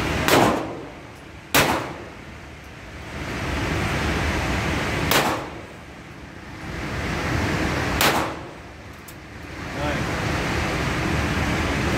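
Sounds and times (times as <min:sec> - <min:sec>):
gunshot: 0:00.2 - 0:00.8, 0:01.5 - 0:02.1, 0:05.1 - 0:05.6, 0:08.0 - 0:08.5.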